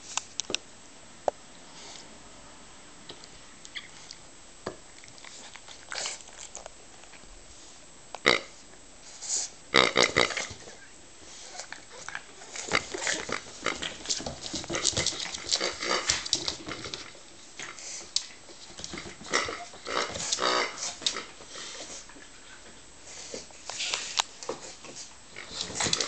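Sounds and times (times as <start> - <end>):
rubber squeeze toy grunting: 9.7 - 10.5
dog scuffling on wooden floor: 11.5 - 26.0.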